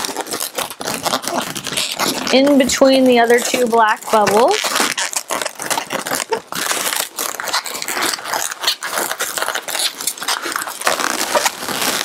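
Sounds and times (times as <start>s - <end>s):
balloons rubbing and squeaking: 0.0s - 12.0s.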